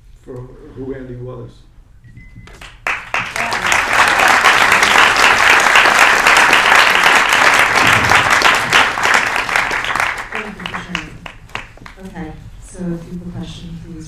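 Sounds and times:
audience applauding: 2.5s - 12.0s.

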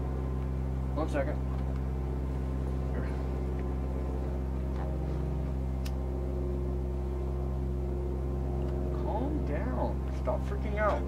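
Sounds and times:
steady low hum: 0.0s - 11.0s
cigarette lighter click: 5.8s - 6.0s.

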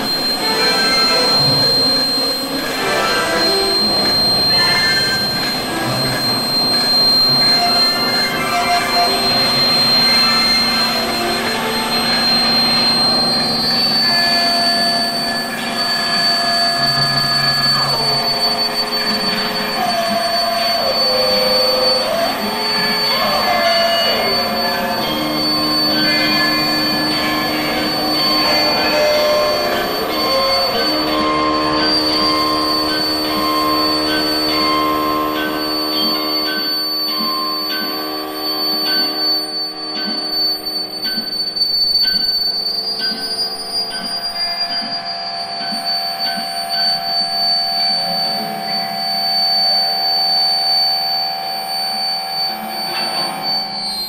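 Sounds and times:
electric guitar drone: 0.0s - 41.4s
high whine: 0.0s - 54.0s.

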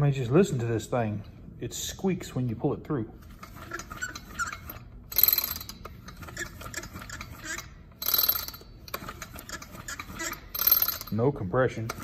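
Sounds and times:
recoil starter squeaking and ratcheting: 3.3s - 11.2s.

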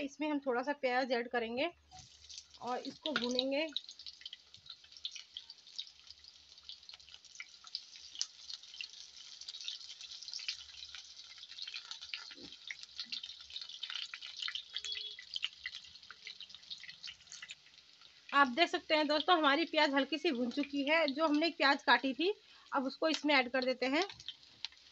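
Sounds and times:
onions sizzling in hot oil: 1.9s - 24.9s.

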